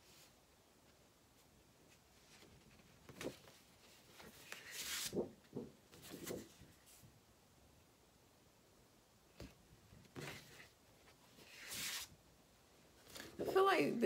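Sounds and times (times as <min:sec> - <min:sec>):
paper rustling and sliding: 0:02.2 - 0:07.0, 0:10.1 - 0:12.2.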